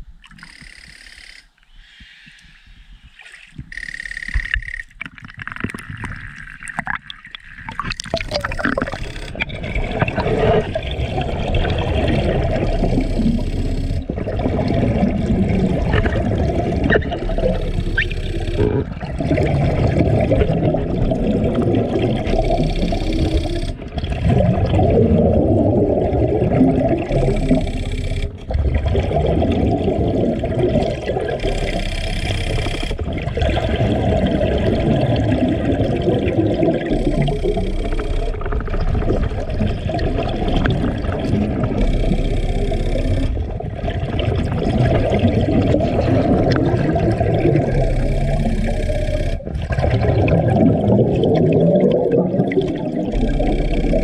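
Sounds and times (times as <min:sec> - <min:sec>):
regulator hiss on inhale: 0:00.5 - 0:03.2, 0:22.7 - 0:23.8
exhaled bubbles rumbling underwater: 0:02.8 - 0:54.0.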